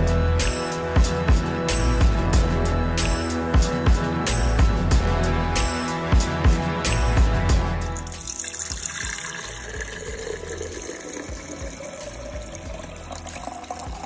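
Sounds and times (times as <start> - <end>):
drum-backed music: 0.0 - 14.0
juice pouring into glass jar: 7.9 - 14.0.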